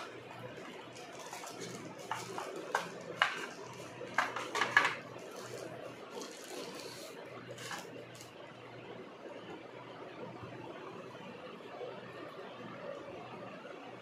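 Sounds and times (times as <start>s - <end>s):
paper and cardboard rustling: 0.0s - 8.3s.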